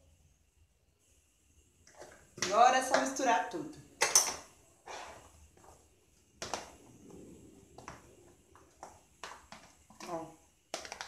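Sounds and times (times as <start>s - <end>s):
pasta mixed by hand in container: 4.8s - 11.0s.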